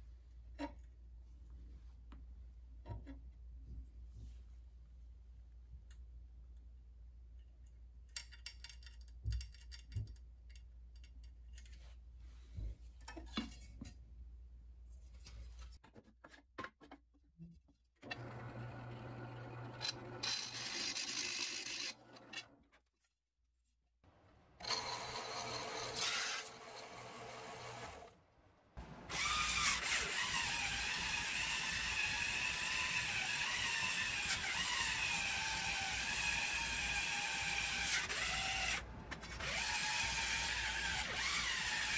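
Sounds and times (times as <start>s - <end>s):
drill press cutting aluminium: 24.6s - 28.0s
cordless drill grinding metal: 24.6s - 28.1s, 29.1s - 41.9s.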